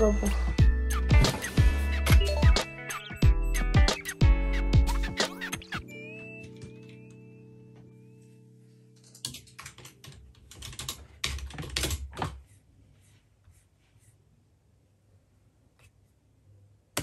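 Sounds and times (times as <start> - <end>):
typing on computer keyboard: 9.0 - 12.4.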